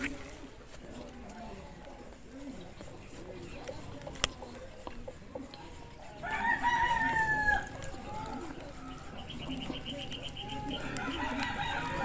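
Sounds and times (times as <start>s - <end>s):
high chirps: 3.8s - 11.4s
rooster crowing: 6.2s - 9.4s, 10.5s - 12.0s.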